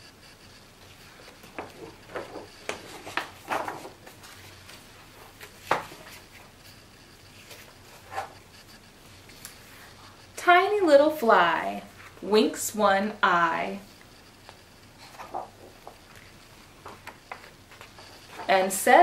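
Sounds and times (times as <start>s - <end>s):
paper pages rustling: 0.8s - 10.2s, 14.5s - 18.7s.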